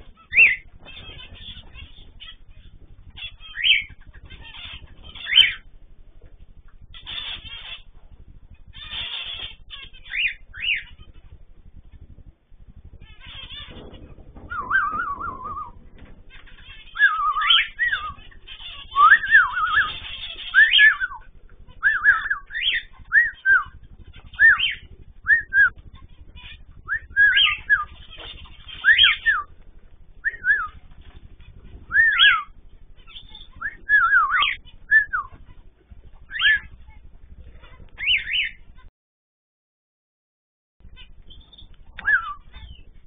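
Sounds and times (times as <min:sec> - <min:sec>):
cockatiel whistled calls: 0:00.2 - 0:01.4, 0:03.2 - 0:05.6, 0:08.8 - 0:11.0, 0:14.4 - 0:15.8, 0:16.4 - 0:25.8, 0:26.4 - 0:29.5, 0:30.2 - 0:30.8, 0:31.9 - 0:35.5, 0:36.3 - 0:36.7, 0:38.0 - 0:38.6, 0:41.3 - 0:42.8.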